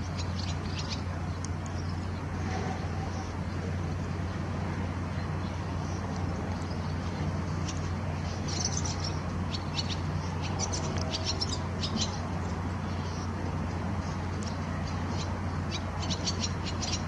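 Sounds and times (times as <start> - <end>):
swallows twittering: 0.0 - 3.4, 5.1 - 13.4, 14.0 - 17.0
low background hum: 0.0 - 17.0.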